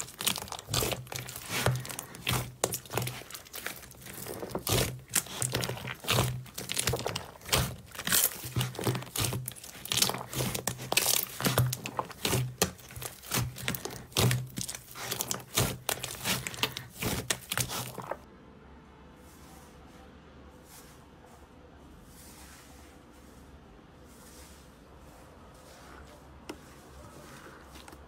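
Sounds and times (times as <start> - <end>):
slime crackling and popping: 0.0 - 18.2
sticky slime tearing: 0.0 - 18.2.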